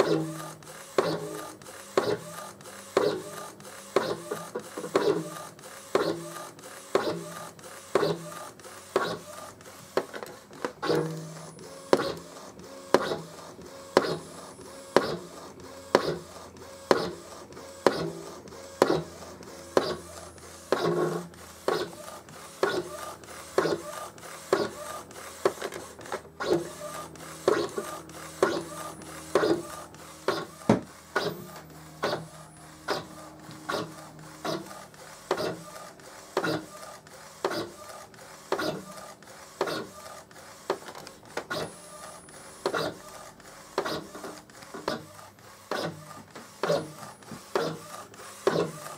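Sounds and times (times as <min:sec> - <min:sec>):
printer carriage motor whirring: 0:00.0 - 0:48.9
printer clicks: 0:24.5 - 0:26.8.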